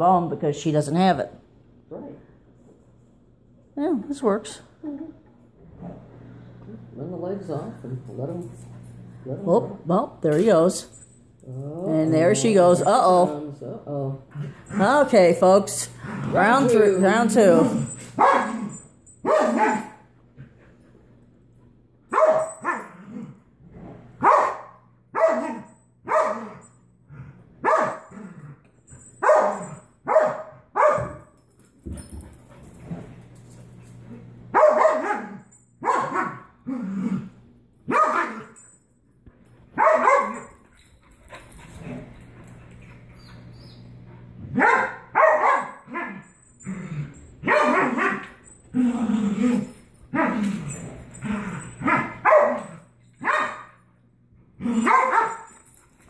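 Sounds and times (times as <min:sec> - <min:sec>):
dog barking: 0:18.2 - 0:18.6, 0:19.2 - 0:20.0, 0:22.1 - 0:22.9, 0:24.2 - 0:26.6, 0:27.6 - 0:28.1, 0:29.2 - 0:31.2, 0:34.5 - 0:36.5, 0:37.9 - 0:38.6, 0:39.8 - 0:40.5, 0:44.5 - 0:46.2, 0:47.4 - 0:48.2, 0:51.8 - 0:53.8, 0:54.8 - 0:55.5.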